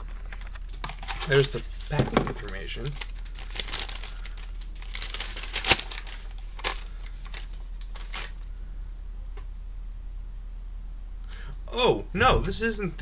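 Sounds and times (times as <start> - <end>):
paper rustling and crinkling: 0.0 - 8.5.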